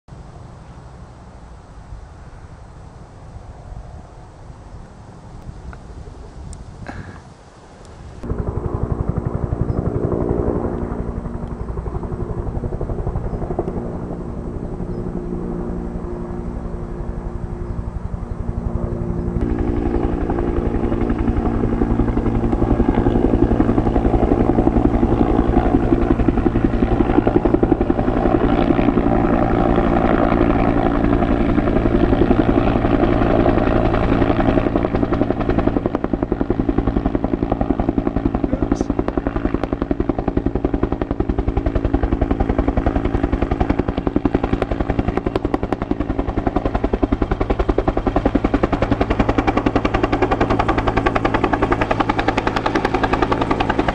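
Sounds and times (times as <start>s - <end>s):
helicopter engine hum: 2.7s - 53.9s
helicopter rotor thudding: 33.8s - 53.9s.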